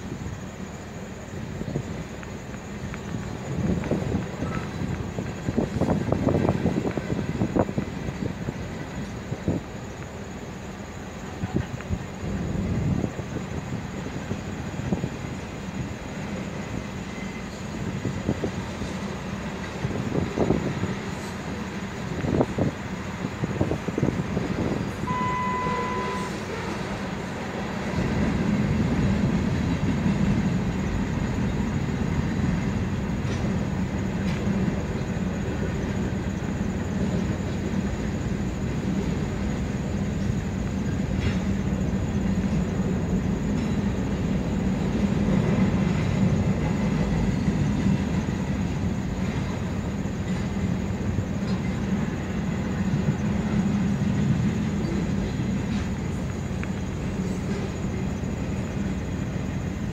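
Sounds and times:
rail clicks: 0.0s - 59.9s
train wheels rumbling on rail: 0.0s - 59.9s
brief steady tone: 25.0s - 26.7s.

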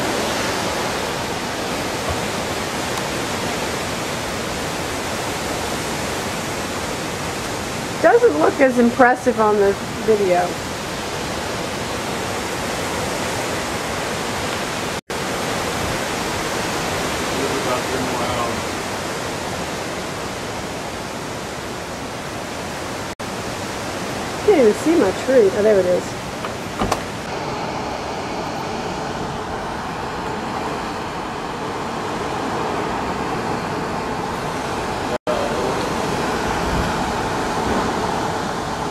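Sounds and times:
strong wind through trees: 0.0s - 38.9s.

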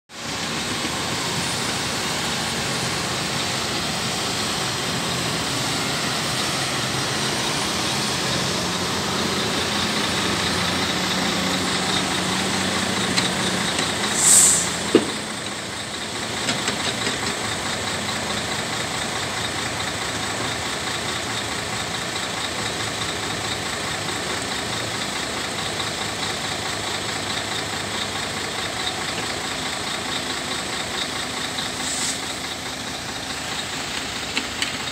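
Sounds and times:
diesel truck engine running: 0.1s - 34.9s
short loud hiss: 14.1s - 14.9s, 31.8s - 32.3s.

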